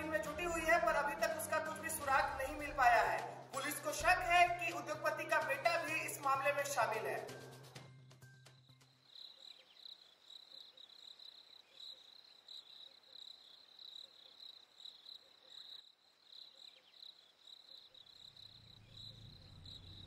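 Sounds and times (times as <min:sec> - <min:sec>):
crickets chirping: 0:08.6 - 0:20.0
low rumble: 0:18.6 - 0:20.0.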